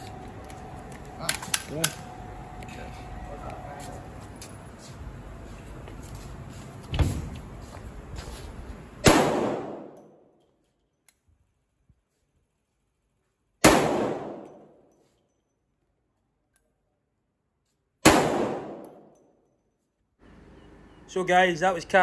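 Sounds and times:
loud pistol shots: 9.0s - 10.0s, 13.6s - 14.4s, 18.0s - 18.9s.

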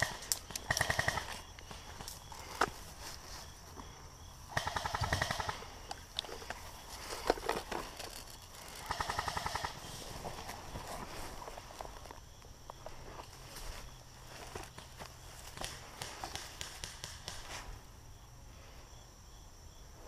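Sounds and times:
airsoft gun bursts: 0.0s - 1.4s, 4.5s - 5.8s, 8.7s - 9.8s.

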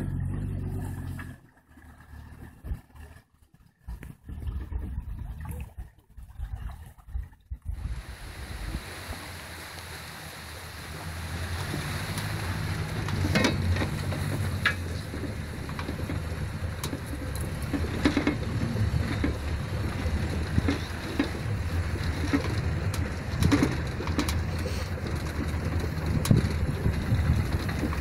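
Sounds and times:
off-road vehicle engine running: 0.0s - 6.3s, 7.0s - 28.0s
vehicle knocks and rattles: 11.0s - 28.0s.

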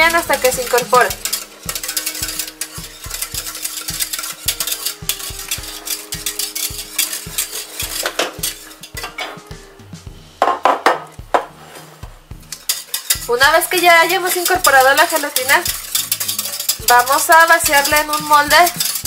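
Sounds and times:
utensil stirring in a pot: 0.0s - 9.5s, 11.3s - 19.0s
glass dish knocking on stone counter: 10.4s - 11.5s.

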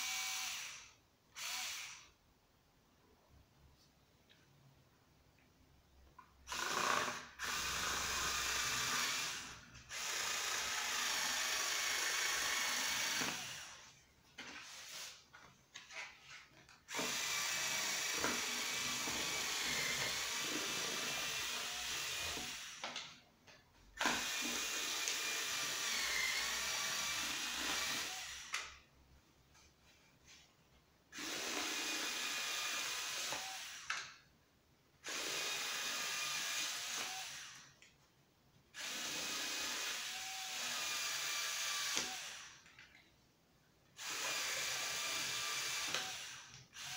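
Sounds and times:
cordless screwdriver motor whining: 6.5s - 13.8s, 16.9s - 22.9s, 24.0s - 28.7s, 31.2s - 34.0s, 35.1s - 37.7s, 38.8s - 42.7s, 44.0s - 46.9s
cutter cutting cardboard and paper: 15.8s - 23.0s.

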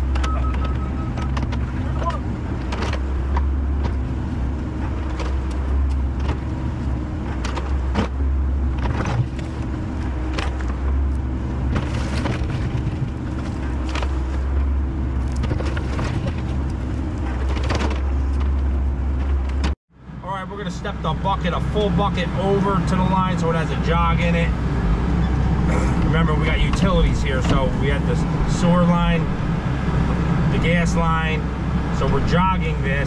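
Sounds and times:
knocks and scrapes: 7.2s - 19.8s.

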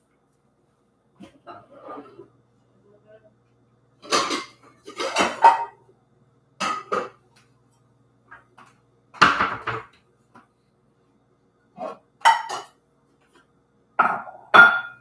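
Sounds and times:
dishes clinking and clattering: 4.0s - 5.8s, 6.6s - 7.4s, 8.3s - 10.0s, 11.8s - 12.8s, 14.0s - 15.0s.

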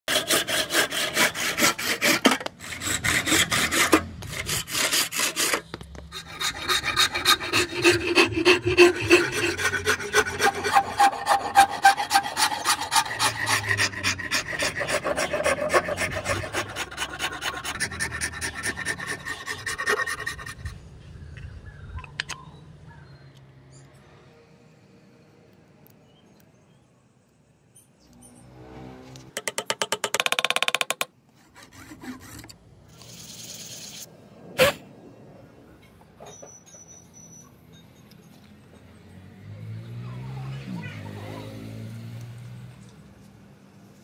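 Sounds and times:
hand saw cutting wood: 0.1s - 20.8s, 29.4s - 32.6s
metal file rasping on wood: 0.1s - 20.8s, 30.2s - 32.5s.

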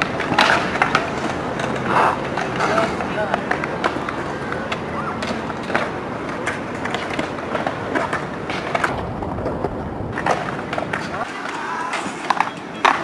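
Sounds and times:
inline skate wheels rolling on concrete: 0.0s - 13.0s
skates clacking on ground: 0.0s - 13.0s.

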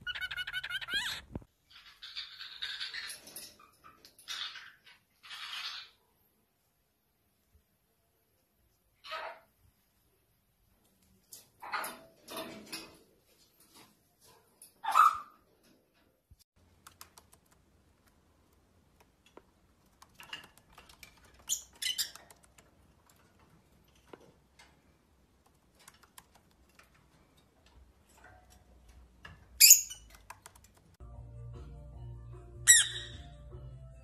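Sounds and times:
parrot chirps: 0.0s - 3.1s, 29.6s - 30.2s, 32.7s - 33.3s
soft clicks and taps: 16.6s - 24.8s, 25.4s - 31.0s.

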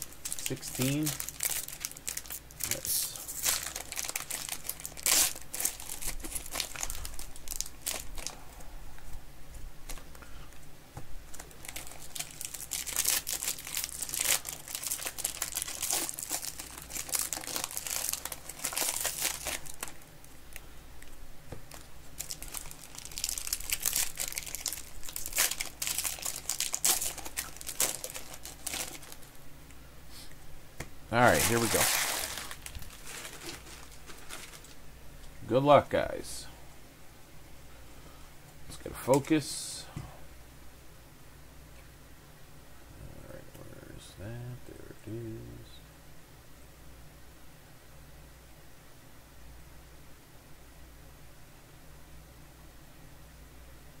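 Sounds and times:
foil wrappers crinkling and tearing: 0.0s - 8.4s, 11.3s - 20.0s, 21.7s - 29.3s, 31.2s - 34.8s.

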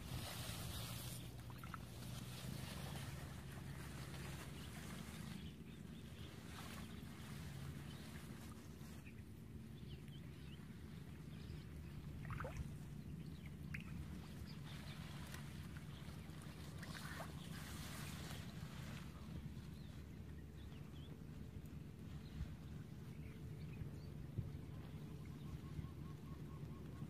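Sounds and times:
water sloshing: 0.0s - 5.2s, 11.7s - 19.1s.

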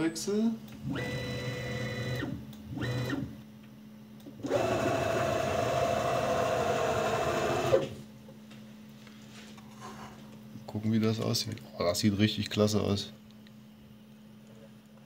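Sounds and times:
cnc router axes whining: 4.4s - 8.0s.

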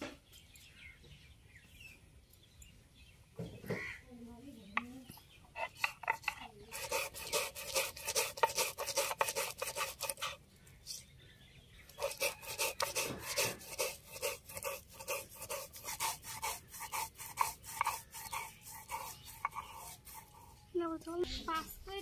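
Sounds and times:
grinding stone rasping: 5.5s - 10.4s, 11.9s - 20.7s.

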